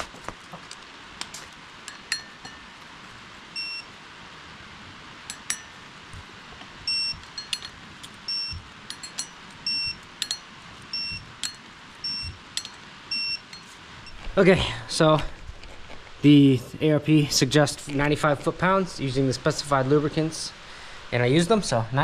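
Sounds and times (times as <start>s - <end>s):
torque wrench beeping: 3.6s - 3.9s, 6.8s - 14.2s.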